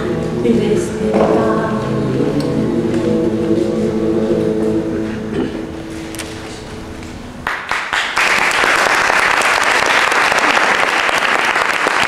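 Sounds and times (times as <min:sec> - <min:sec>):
audience applause: 0:07.4 - 0:12.0.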